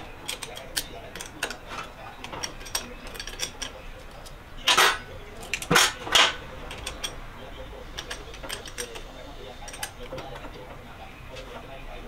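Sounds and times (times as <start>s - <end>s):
metal tools clicking and clinking: 0.0s - 10.6s.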